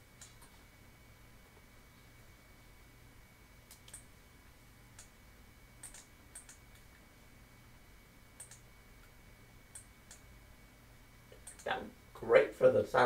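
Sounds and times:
low electrical hum: 0.0s - 13.0s
faint mouse clicks: 5.8s - 6.9s, 8.4s - 8.7s, 11.3s - 11.7s.

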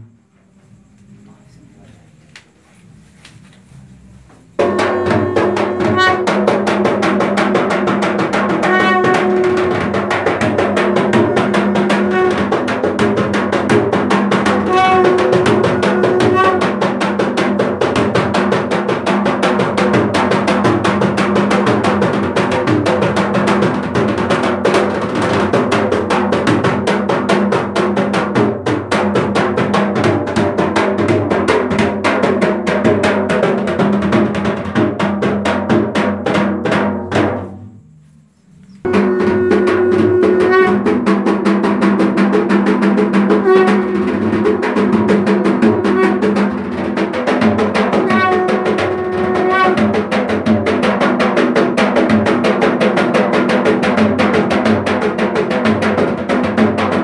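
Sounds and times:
short pitched notes: 4.5s - 6.8s, 37.4s - 41.1s
ritual drum beaten fast: 4.5s - 38.0s, 38.8s - 57.0s.

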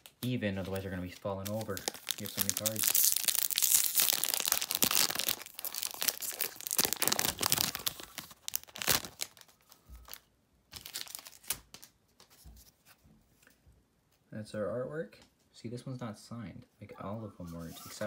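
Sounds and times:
foil wrapper tearing and crinkling: 0.0s - 11.9s.

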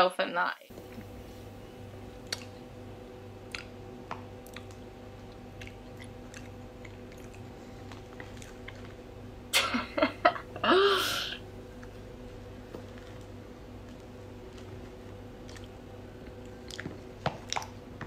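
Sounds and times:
wet chewing and lip-smacking: 2.2s - 2.6s, 3.5s - 9.0s, 15.4s - 18.0s
person laughing: 9.6s - 11.4s.

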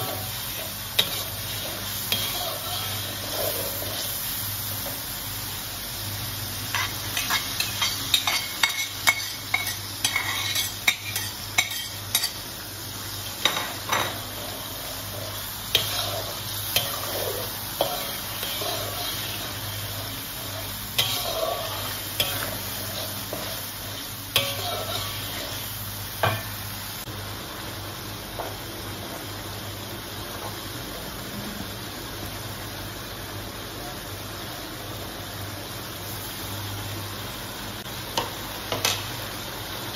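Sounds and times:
metal spatula scraping a wok: 0.0s - 4.2s, 6.7s - 12.4s, 15.7s - 25.6s
sauce sizzling: 0.0s - 33.8s, 34.6s - 39.9s.

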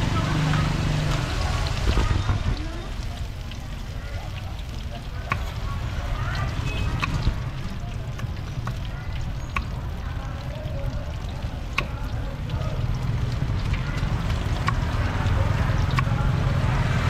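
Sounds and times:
background chatter: 0.0s - 17.0s
sharp clicks and knocks: 5.2s - 5.6s, 6.4s - 9.8s.

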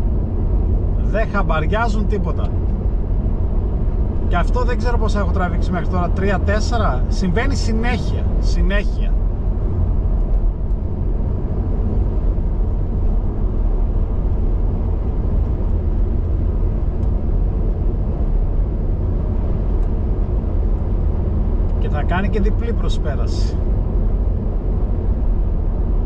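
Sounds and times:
car cabin road rumble: 0.0s - 26.0s.

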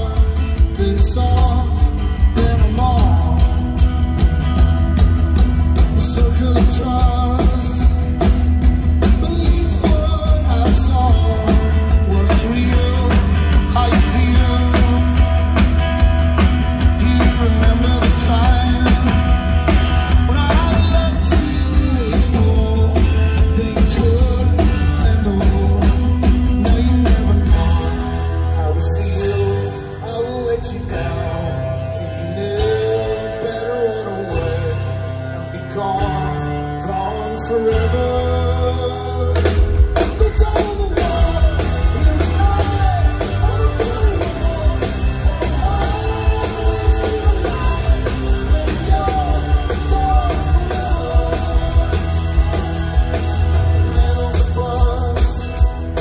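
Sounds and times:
man singing: 0.0s - 4.3s, 5.6s - 56.0s
drum kit: 0.0s - 56.0s
electric guitar: 0.0s - 56.0s
heavy bass: 0.0s - 56.0s.

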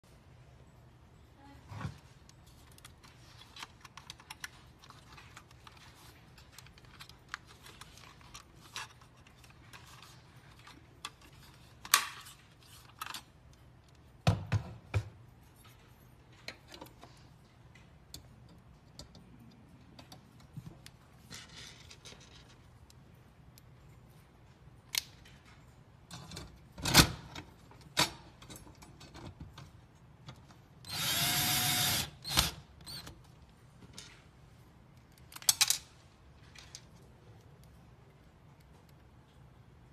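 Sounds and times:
plastic parts clicking and tapping: 2.6s - 15.1s.

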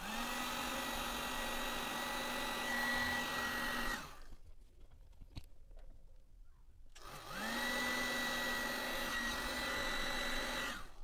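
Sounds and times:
heat gun fan whine: 0.0s - 4.3s, 7.0s - 11.0s.

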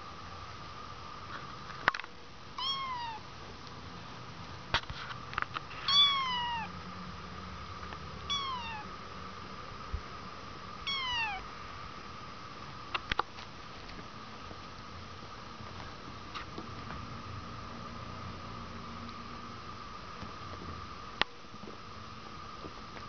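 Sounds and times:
kittens meowing: 2.6s - 3.2s, 5.9s - 6.7s, 8.3s - 8.9s, 10.9s - 11.4s.

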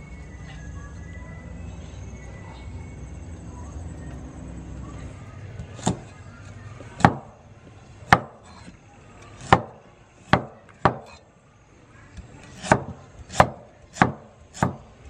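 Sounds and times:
cleaver chopping on wooden block: 8.1s - 8.7s, 9.4s - 11.2s, 12.6s - 14.9s.

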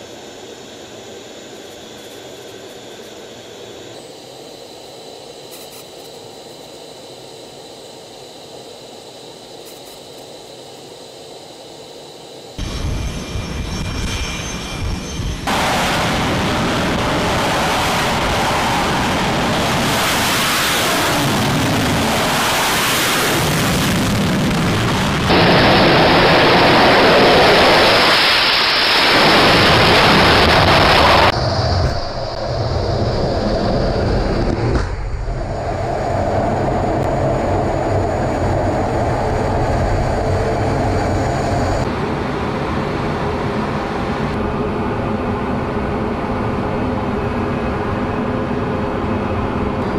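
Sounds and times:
jet engines roaring: 12.6s - 49.9s.

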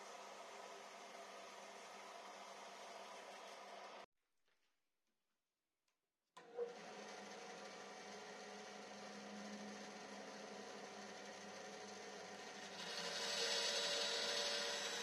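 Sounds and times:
band saw running: 6.4s - 15.0s.

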